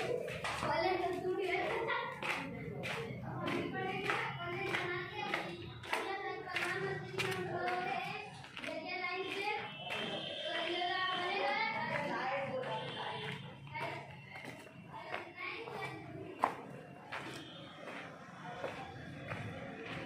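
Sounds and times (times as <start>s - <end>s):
child-like voice singing: 0.0s - 16.6s.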